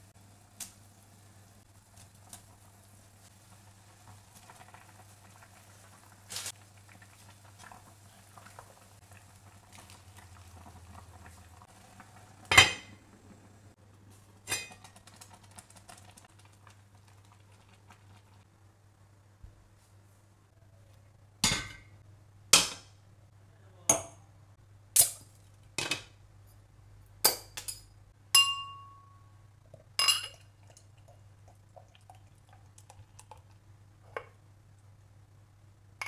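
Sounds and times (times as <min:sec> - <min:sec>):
broth bubbling in a pot: 0:00.0 - 0:18.5, 0:29.6 - 0:35.0
dishes and utensils clinking: 0:12.5 - 0:13.0, 0:27.3 - 0:29.2, 0:30.0 - 0:30.5.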